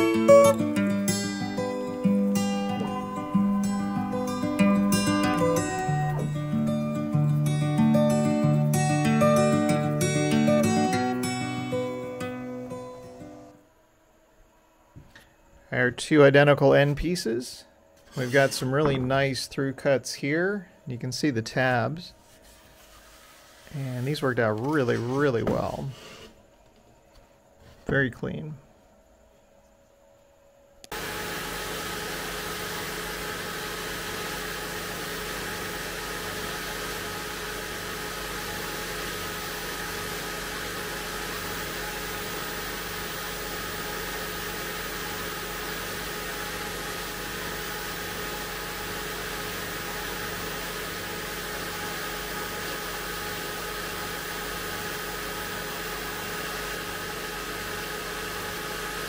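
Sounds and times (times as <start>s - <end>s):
spindle sander running: 0.0s - 12.8s, 30.9s - 59.0s.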